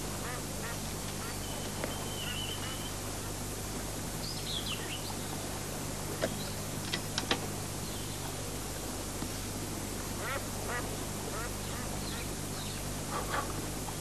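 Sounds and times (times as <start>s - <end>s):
steady low hum and hiss: 0.0s - 14.0s
small birds chirping: 1.2s - 3.0s, 4.2s - 5.4s.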